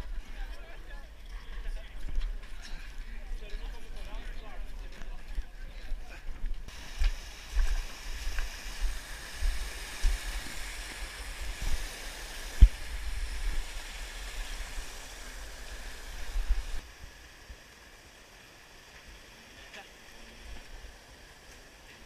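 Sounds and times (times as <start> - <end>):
rushing water hissing: 6.7 - 22.0.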